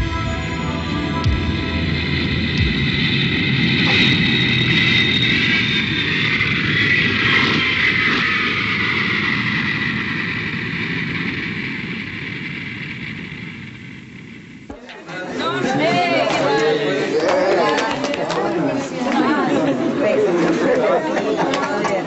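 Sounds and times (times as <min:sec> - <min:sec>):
jet engines whining and rushing: 0:00.0 - 0:22.0.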